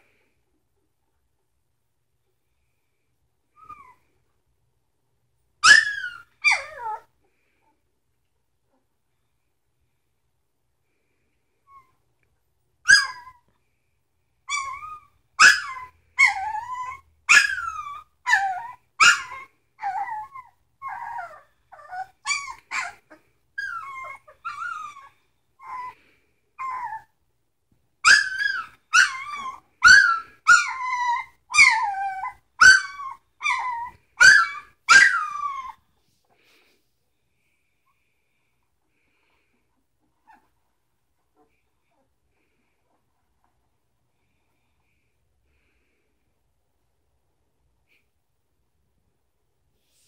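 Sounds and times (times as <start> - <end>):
puppy yelping and whining: 3.5 - 4.2, 5.6 - 7.1, 12.8 - 13.6, 14.4 - 27.2, 28.0 - 36.0, 39.7 - 43.6.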